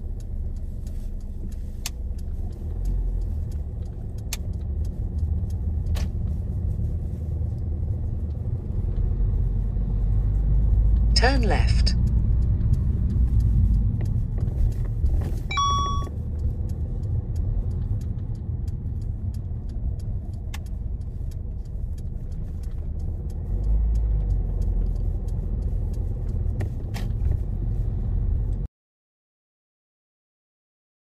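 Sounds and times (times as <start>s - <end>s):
faint light ticks: 0.0s - 11.1s, 12.0s - 28.7s
car engine and road rumble: 0.0s - 28.7s
short electronic beep: 15.5s - 16.1s.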